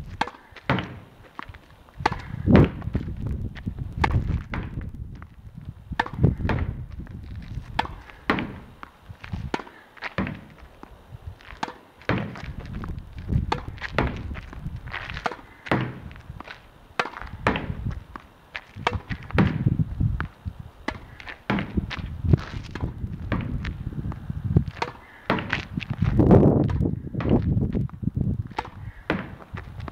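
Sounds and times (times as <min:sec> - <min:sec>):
ball bouncing on hard court: 0:00.1 - 0:01.1, 0:02.0 - 0:03.0, 0:06.0 - 0:06.8, 0:11.6 - 0:14.5, 0:17.0 - 0:18.2, 0:22.7 - 0:23.7
racket striking tennis ball: 0:00.1 - 0:01.4, 0:02.0 - 0:02.9, 0:06.0 - 0:06.8, 0:07.7 - 0:10.6, 0:11.5 - 0:12.6, 0:13.4 - 0:14.4, 0:15.0 - 0:19.7, 0:20.8 - 0:22.0, 0:22.6 - 0:23.6, 0:24.8 - 0:25.7, 0:28.5 - 0:29.5
ball thudding off wall: 0:00.2 - 0:01.1, 0:07.8 - 0:08.7, 0:09.5 - 0:10.5, 0:11.6 - 0:12.5, 0:15.2 - 0:16.1, 0:17.0 - 0:17.8, 0:20.9 - 0:21.9.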